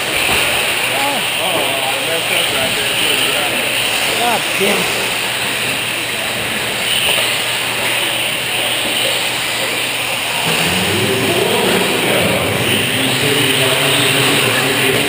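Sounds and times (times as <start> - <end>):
indistinct voice: 10.4 - 15.0.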